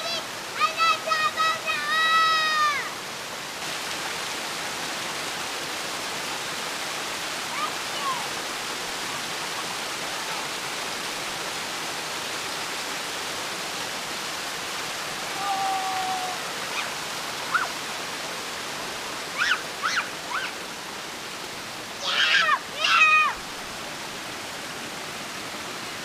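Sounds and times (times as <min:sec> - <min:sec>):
water pouring over rock ledges: 0:00.0 - 0:26.0.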